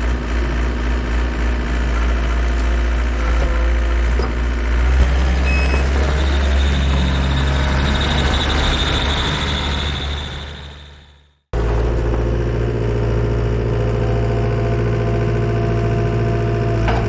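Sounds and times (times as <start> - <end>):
diesel engine humming: 0.0 - 17.0
high whine: 5.0 - 11.4.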